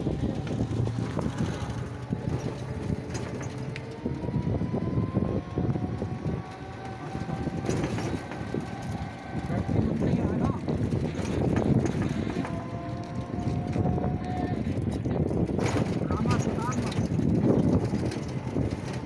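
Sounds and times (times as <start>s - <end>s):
road and wind noise: 0.0s - 19.0s
metal frame rattling: 6.6s - 19.0s.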